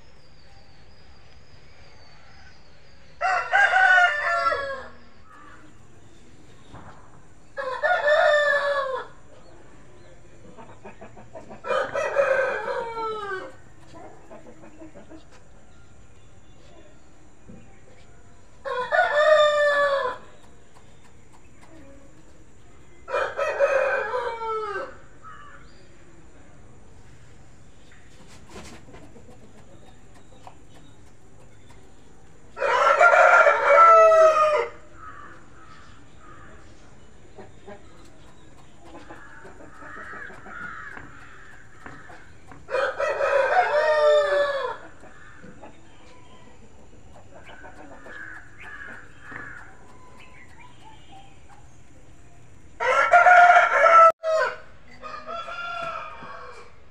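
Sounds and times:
rooster crowing: 0:03.2 - 0:05.6, 0:07.6 - 0:09.2, 0:11.6 - 0:13.6, 0:18.6 - 0:20.3, 0:23.1 - 0:25.0, 0:32.6 - 0:34.9, 0:42.7 - 0:44.9, 0:52.8 - 0:56.9.

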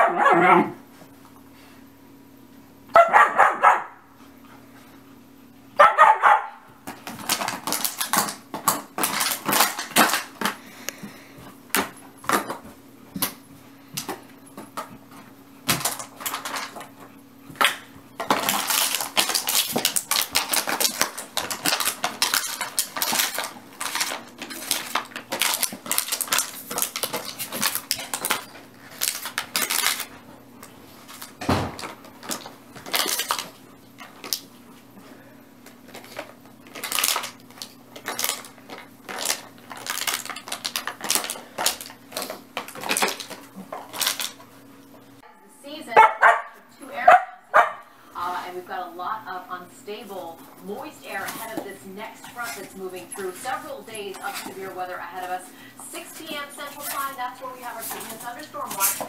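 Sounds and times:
dog barks: 0:00.0 - 0:00.8, 0:02.9 - 0:04.0, 0:05.8 - 0:06.6, 0:46.0 - 0:47.9.

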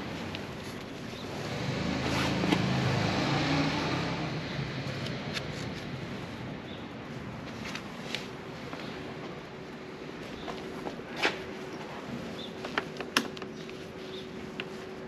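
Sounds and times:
motor vehicle passing by: 0:01.2 - 0:05.7.

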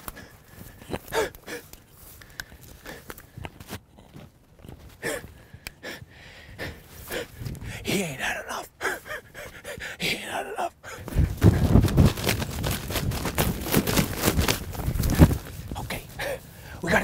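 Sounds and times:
breathy gasps: 0:00.0 - 0:03.5, 0:05.0 - 0:11.5, 0:15.8 - 0:16.9
footsteps through tall grass: 0:11.0 - 0:17.0.

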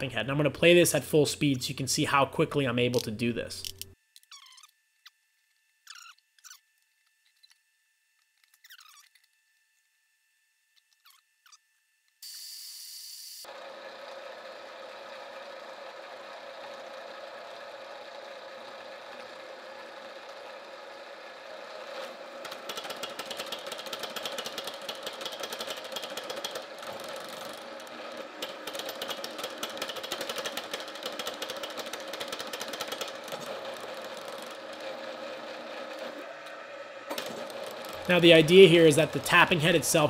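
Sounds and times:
fast dense clicking: 0:22.4 - 0:35.2
tapping machine humming: 0:22.4 - 0:40.0.

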